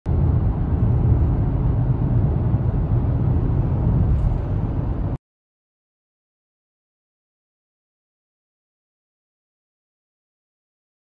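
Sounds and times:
low road rumble inside car: 0:00.1 - 0:05.2.

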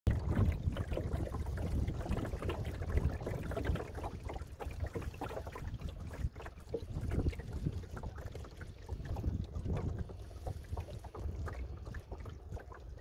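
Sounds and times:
water lapping against wooden hull: 0:00.1 - 0:13.0
wind rumbling on microphone: 0:00.1 - 0:13.0.

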